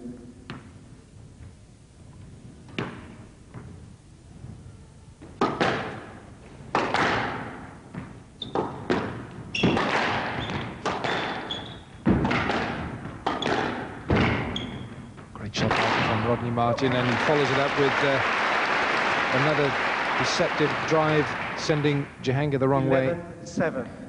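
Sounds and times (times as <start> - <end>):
squash ball hits echoing: 5.4 - 15.0, 15.6 - 16.5
shoes squeaking on court floor: 8.0 - 15.4.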